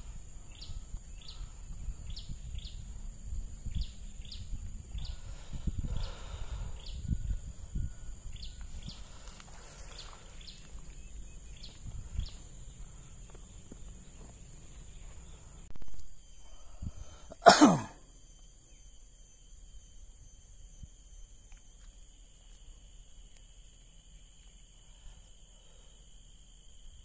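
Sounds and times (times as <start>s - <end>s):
low wind rumble: 0.0s - 17.3s
high-pitched insect drone: 0.0s - 27.0s.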